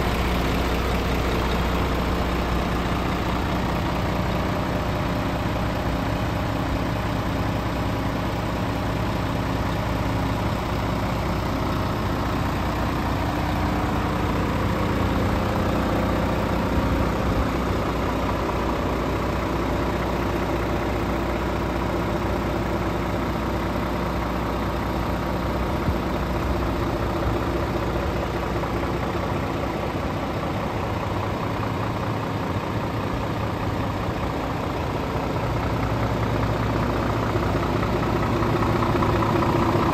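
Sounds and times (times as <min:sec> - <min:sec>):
diesel truck engine idling: 0:00.0 - 0:39.9.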